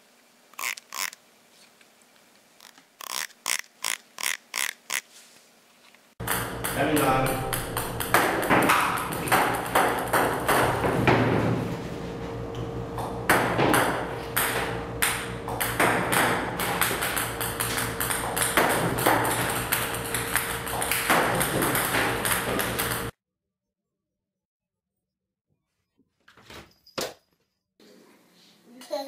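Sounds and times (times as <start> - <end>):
ping-pong balls bouncing on table: 6.2 - 11.2, 13.3 - 23.1.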